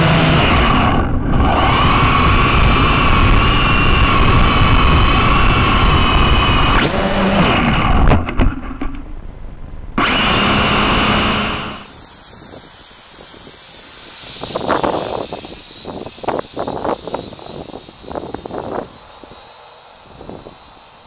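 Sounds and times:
drone propellers whining: 0.0 - 21.0
wind on microphone: 0.0 - 21.0.

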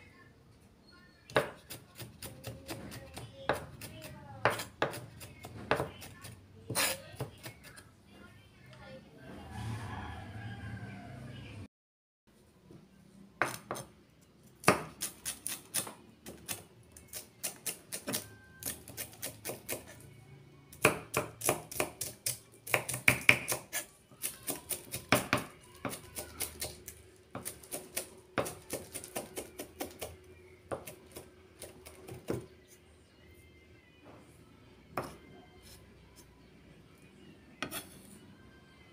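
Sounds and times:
knife chopping herbs on wood: 1.3 - 7.8, 14.6 - 20.0, 20.8 - 32.5.

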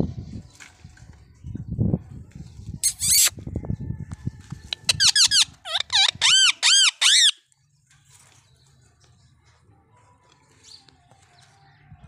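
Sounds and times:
parakeet shrill calls: 2.8 - 3.3, 4.8 - 7.4.

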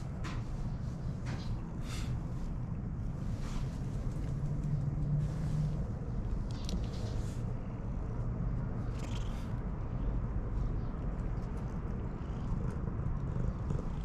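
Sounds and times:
cat purring: 8.8 - 10.1, 10.7 - 14.0.

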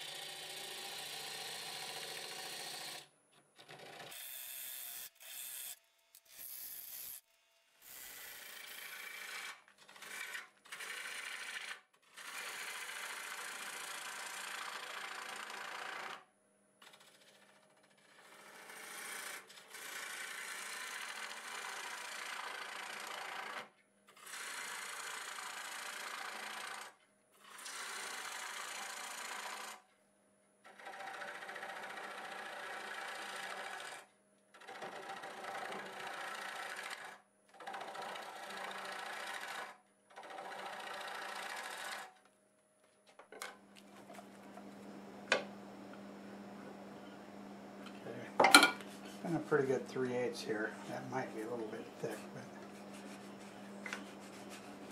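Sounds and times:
gouge cutting wood on lathe: 0.1 - 3.0, 7.9 - 16.2, 18.1 - 26.9, 30.7 - 42.1, 50.9 - 54.9
lathe faint hum: 43.6 - 54.9.

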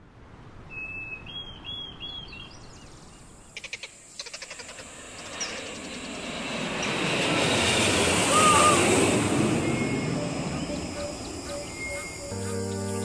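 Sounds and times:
rapid clicking calls: 3.6 - 6.1
bird whistling: 9.5 - 13.0.

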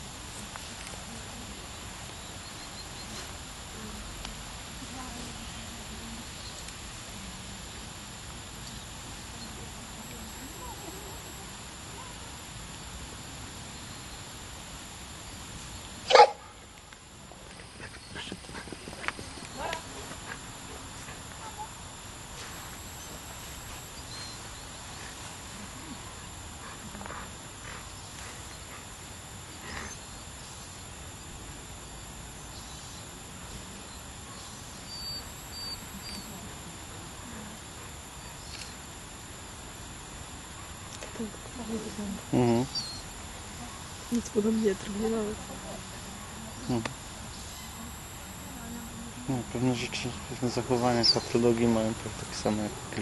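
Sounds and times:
faint high-pitched whine: 0.0 - 53.0
steady hiss: 0.0 - 53.0
dog barking: 16.1 - 16.5, 21.4 - 21.7.

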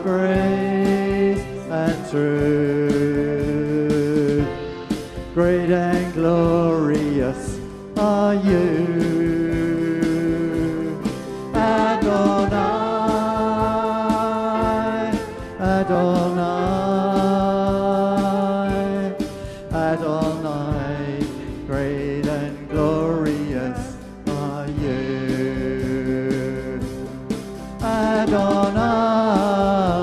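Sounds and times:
acoustic guitar: 0.0 - 30.0
bass guitar: 0.0 - 30.0
drums: 0.0 - 30.0
people singing held notes: 10.3 - 18.2.

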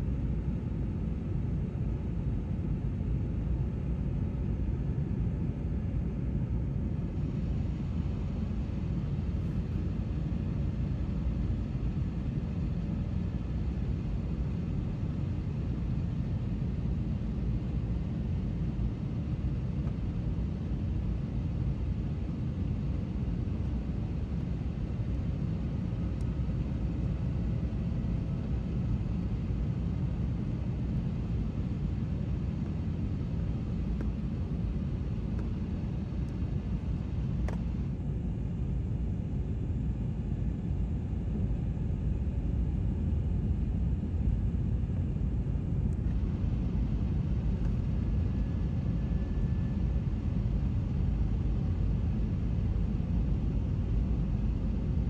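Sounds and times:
jet engines rumbling: 45.9 - 51.6.

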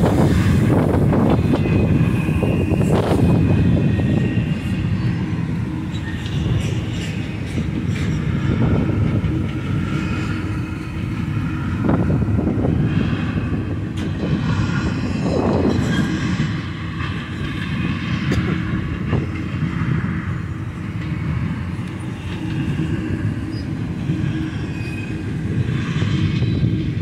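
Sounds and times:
steel wheels rumbling on rail: 0.0 - 27.0
high-pitched squealing: 0.1 - 16.9.

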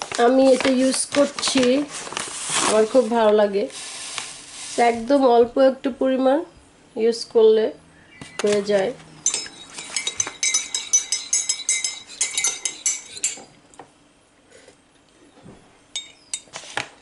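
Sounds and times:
teaspoon clinking in a mug: 9.2 - 13.5.

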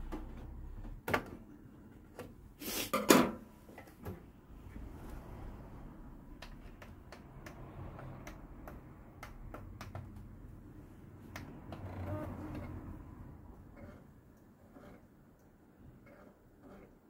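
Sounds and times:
hands clicking and tapping computer case: 6.4 - 10.4.

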